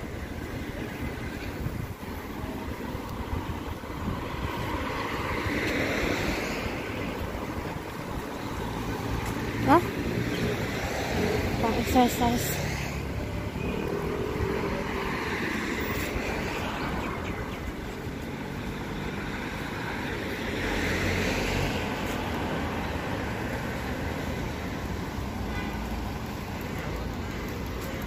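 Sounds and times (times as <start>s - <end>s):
city traffic rumble: 0.0s - 28.0s
vehicle passing: 4.0s - 17.2s.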